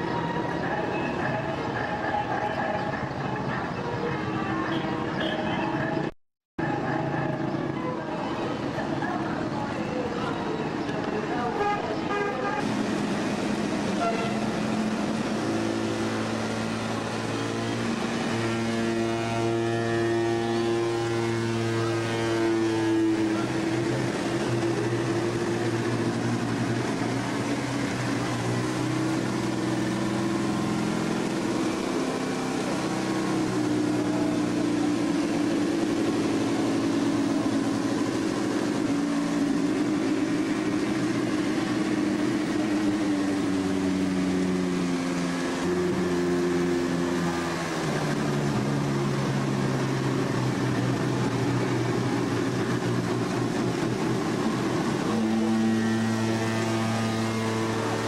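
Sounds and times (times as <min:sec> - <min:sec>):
wooden waterwheel groaning: 0:12.6 - 0:58.0.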